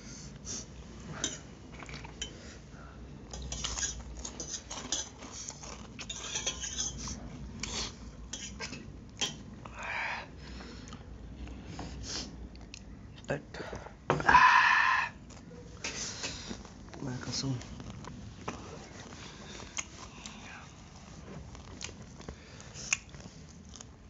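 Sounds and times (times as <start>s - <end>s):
cutlery clinking on steel plates: 6.0s - 7.0s.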